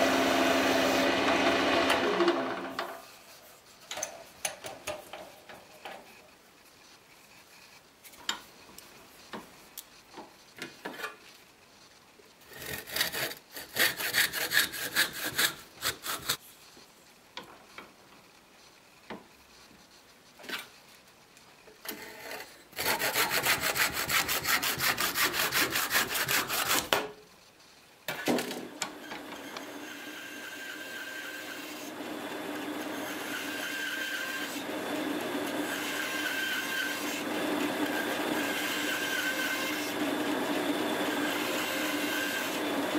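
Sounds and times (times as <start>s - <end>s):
bandsaw cutting wood: 0.0s - 2.9s, 12.5s - 16.4s, 22.8s - 26.9s, 28.9s - 42.9s
hand sawing wood: 12.5s - 16.4s, 22.7s - 27.0s.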